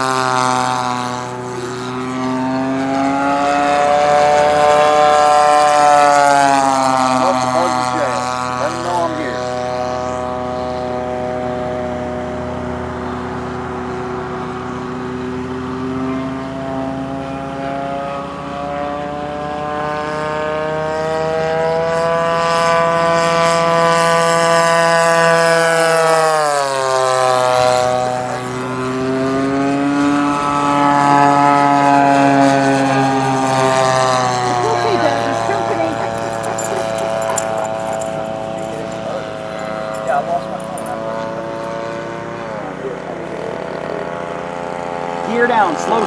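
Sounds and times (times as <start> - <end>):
model airplane engine buzzing: 0.0 - 46.0.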